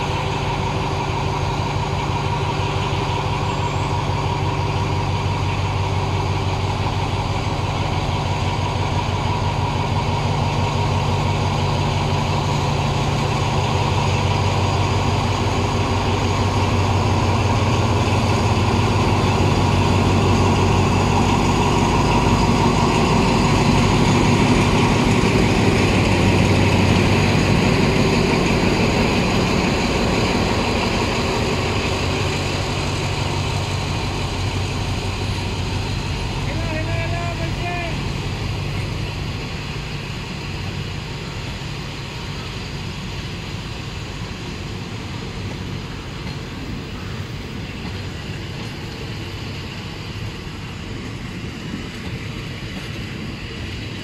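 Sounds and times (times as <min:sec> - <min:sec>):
diesel train engine idling: 0:00.0 - 0:54.0.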